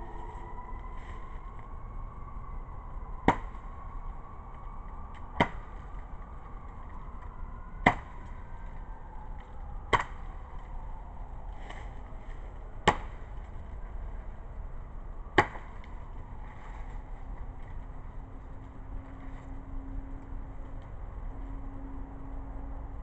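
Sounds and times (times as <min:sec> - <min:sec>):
sword chopping dead tree trunk: 0:03.2 - 0:03.6, 0:05.3 - 0:05.8, 0:07.8 - 0:08.4, 0:09.9 - 0:10.3, 0:12.8 - 0:13.5, 0:15.3 - 0:15.9.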